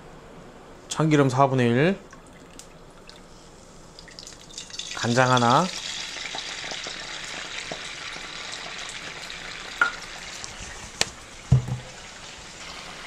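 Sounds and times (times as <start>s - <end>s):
oil sizzling in frying pan: 4.0s - 13.0s.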